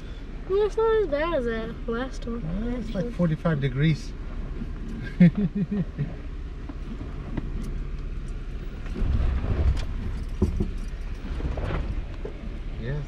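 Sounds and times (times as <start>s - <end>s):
car engine running at low speed: 0.0s - 13.0s
knocks from car body and suspension: 8.8s - 12.5s.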